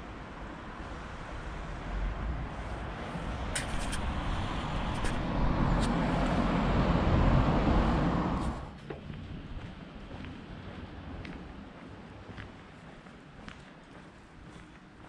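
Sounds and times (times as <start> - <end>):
vehicle passing close by: 1.0 - 8.7.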